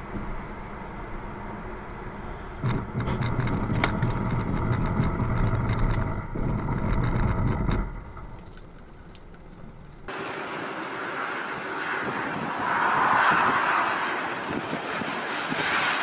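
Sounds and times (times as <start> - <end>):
car interior road rumble: 0.0 - 16.0
sharp ticks and knocks: 2.6 - 10.2.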